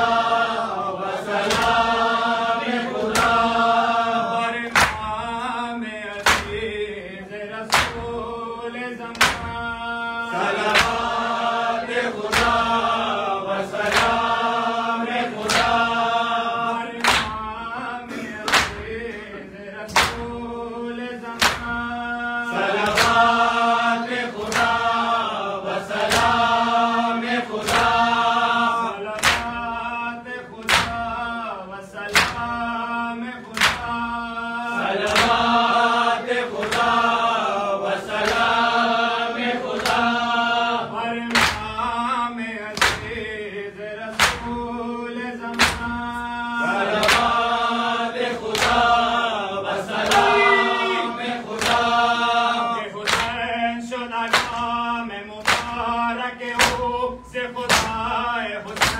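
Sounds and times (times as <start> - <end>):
men chanting together: 0.0 - 58.9
hands slapping chest: 1.4 - 2.0, 2.9 - 3.6, 4.6 - 5.2, 6.1 - 6.7, 7.7 - 8.2, 9.1 - 9.6, 10.6 - 11.3, 12.2 - 13.1, 13.8 - 14.5, 15.4 - 16.0, 17.0 - 17.4, 18.4 - 19.0, 19.9 - 20.4, 21.4 - 21.8, 22.8 - 23.4, 24.3 - 25.0, 25.9 - 26.4, 27.6 - 28.2, 29.1 - 29.6, 30.6 - 31.1, 32.1 - 32.6, 33.5 - 34.0, 35.0 - 35.5, 36.6 - 37.0, 39.6 - 40.1, 41.3 - 41.7, 42.7 - 43.2, 44.1 - 44.6, 45.5 - 46.1, 46.9 - 47.5, 48.4 - 49.0, 51.5 - 51.9, 53.0 - 53.4, 54.3 - 54.7, 55.4 - 55.8, 56.5 - 56.9, 57.7 - 58.0, 58.7 - 58.9.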